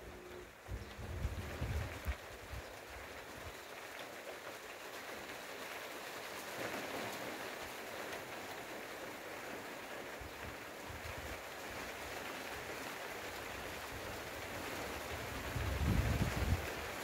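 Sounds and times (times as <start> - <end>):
rain falling on trees and grass: 0.0 - 17.0.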